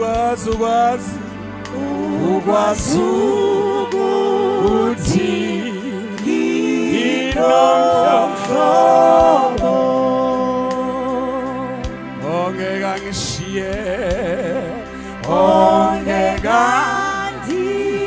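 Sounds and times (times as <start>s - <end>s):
choir singing gospel in harmony: 0.0s - 18.0s.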